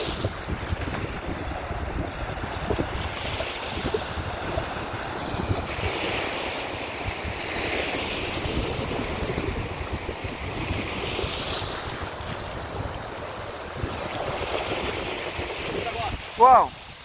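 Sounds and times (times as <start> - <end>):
small surf washing on beach: 0.0 - 17.0
wind buffeting microphone: 0.0 - 17.0.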